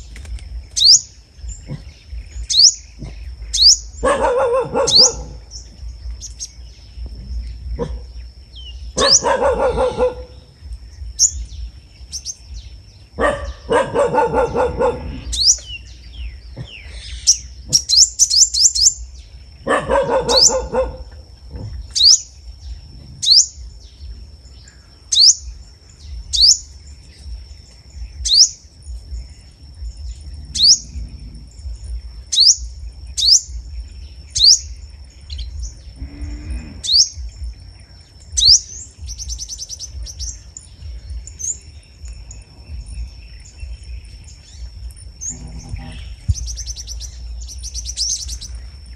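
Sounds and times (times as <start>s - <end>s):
songbird calling and trilling: 0.0s - 48.9s
dog barking: 4.0s - 5.4s, 7.8s - 8.1s, 9.0s - 10.4s, 13.2s - 15.2s, 19.6s - 21.7s.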